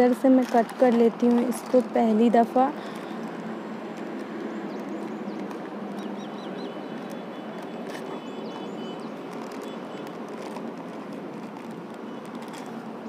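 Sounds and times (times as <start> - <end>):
steady outdoor hiss: 0.0 - 13.0
small birds chirping: 4.2 - 10.4.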